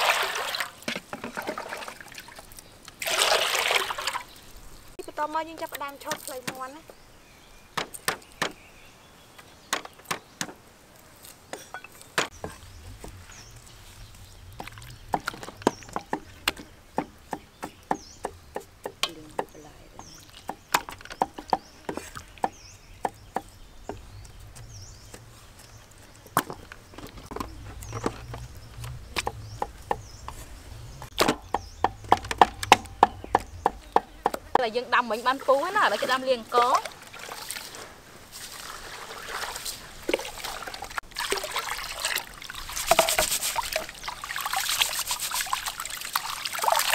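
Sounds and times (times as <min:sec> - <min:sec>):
cleaver chopping on wood: 0:07.8 - 0:08.6, 0:14.6 - 0:19.6, 0:20.4 - 0:24.0, 0:31.1 - 0:34.6.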